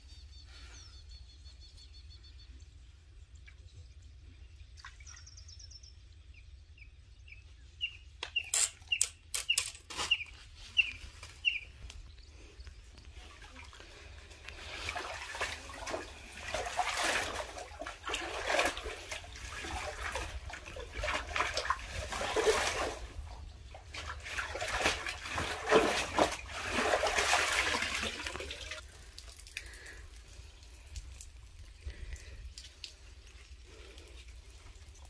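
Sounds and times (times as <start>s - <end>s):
water sloshing and splashing: 4.6s - 5.4s, 9.9s - 35.0s.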